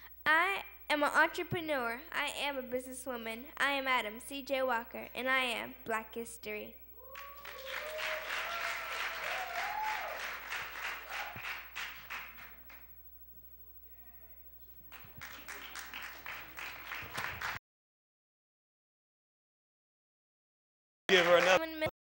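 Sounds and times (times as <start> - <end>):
audience whoops: 7.0 - 12.2
audience clapping: 7.1 - 13.0, 14.8 - 17.6, 21.1 - 21.9.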